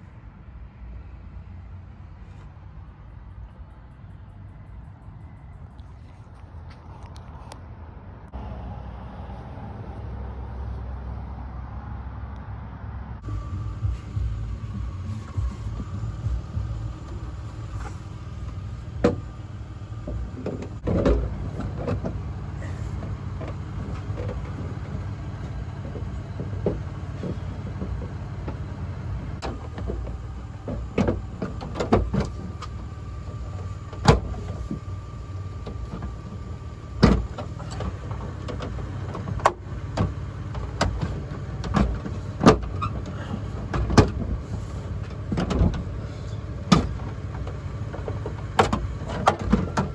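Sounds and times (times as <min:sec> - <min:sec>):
steady low hum: 0:13.0 - 0:38.5.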